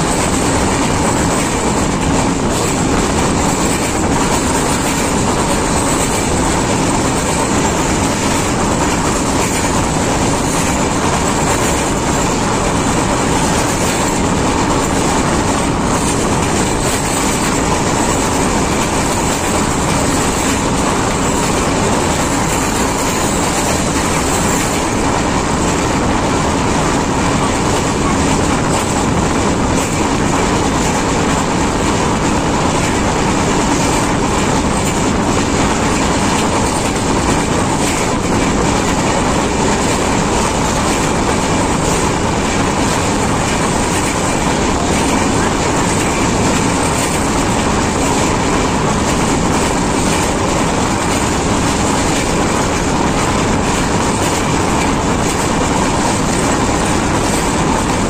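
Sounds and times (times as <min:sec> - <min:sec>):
train wheels roaring on rails: 0:00.0 - 0:58.0.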